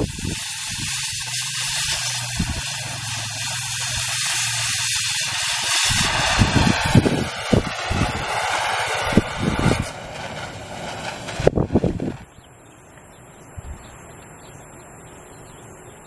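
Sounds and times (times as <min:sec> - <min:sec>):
cutting torch hissing: 0:00.0 - 0:12.1.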